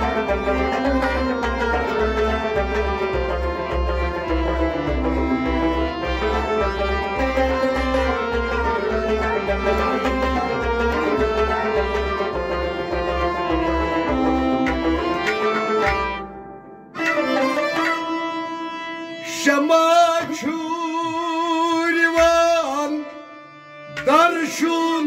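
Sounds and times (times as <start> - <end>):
folk music with drum beat: 0.0 - 16.3.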